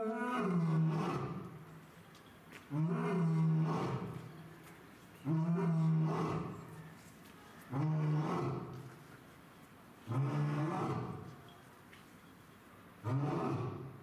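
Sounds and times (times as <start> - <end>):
lion roaring: 0.0 - 1.6, 2.7 - 4.2, 5.3 - 6.6, 7.7 - 8.8, 10.1 - 11.3, 13.0 - 14.0.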